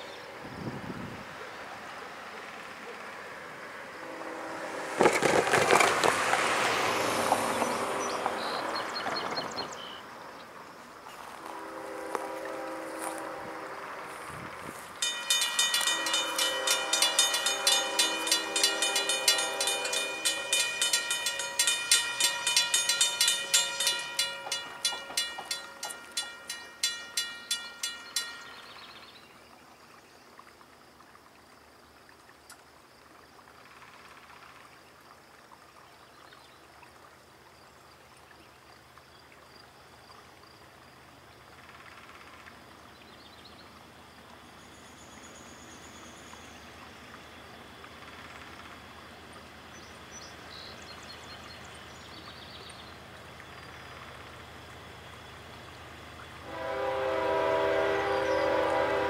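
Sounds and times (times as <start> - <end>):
approaching train rumble: 0.0 - 10.3, 10.9 - 29.4, 41.3 - 59.0
crossing warning bell ringing: 15.0 - 29.1, 56.4 - 59.0.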